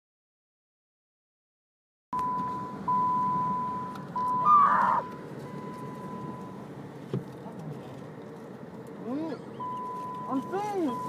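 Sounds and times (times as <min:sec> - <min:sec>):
car warning chime: 0:02.2 - 0:06.7, 0:09.4 - 0:11.0
car cabin noise while moving: 0:02.2 - 0:11.0.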